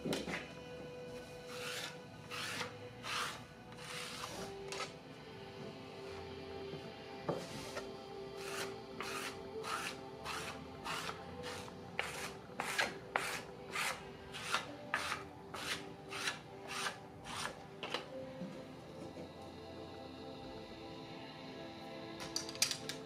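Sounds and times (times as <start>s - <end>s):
soft background music: 0.0s - 23.0s
scraping clay slab: 1.5s - 4.9s, 7.4s - 17.6s.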